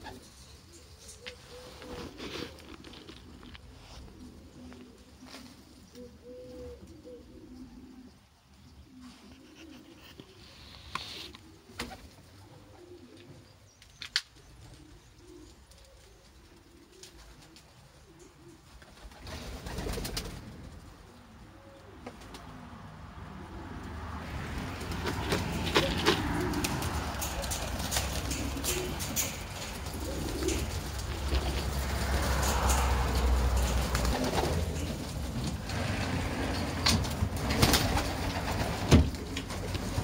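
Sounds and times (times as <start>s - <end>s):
rustling: 0.0s - 5.9s, 24.8s - 40.0s
pigeons cooing: 0.0s - 13.7s, 14.4s - 40.0s.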